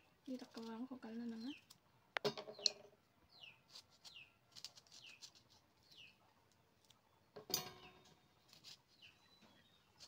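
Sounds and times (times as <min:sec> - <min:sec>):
faint bird chirps: 0:02.5 - 0:10.0.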